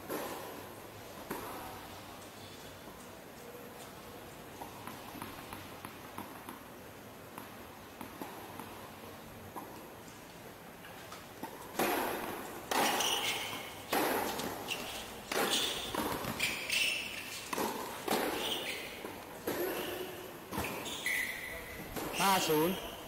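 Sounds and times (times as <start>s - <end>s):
tennis balls bouncing on hard court: 0.1s - 1.8s, 4.6s - 8.9s, 11.4s - 22.9s
tennis balls struck by rackets: 0.1s - 1.8s, 4.6s - 8.9s, 11.4s - 21.0s, 21.8s - 22.8s.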